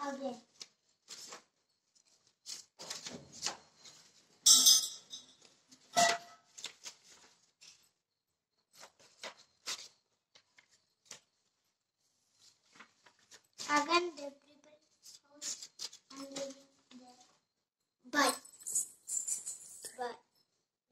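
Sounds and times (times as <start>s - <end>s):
paper rustling and crinkling: 0.4s - 4.3s, 5.5s - 7.8s, 8.8s - 14.0s, 14.9s - 17.4s.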